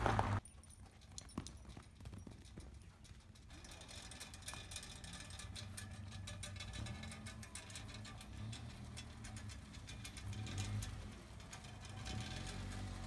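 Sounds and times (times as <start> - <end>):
car engine hum passing: 0.0 - 0.4, 5.6 - 13.0.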